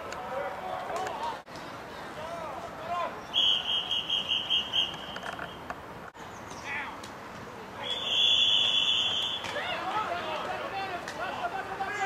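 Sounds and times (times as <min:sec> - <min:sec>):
referee whistle blasts: 0:03.3 - 0:05.2, 0:07.8 - 0:09.6.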